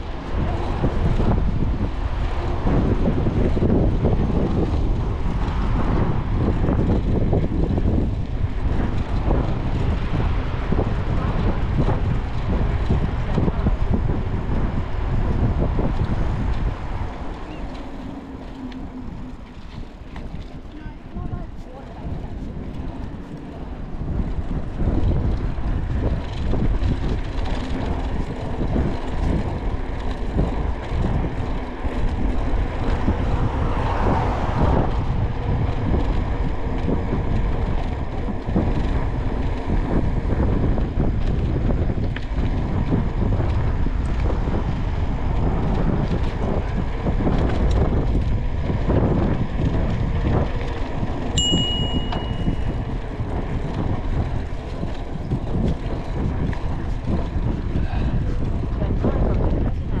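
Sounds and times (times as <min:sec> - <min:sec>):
wind buffeting microphone: 0:00.0 - 1:00.0
bicycle bell ding: 0:51.4 - 0:52.8.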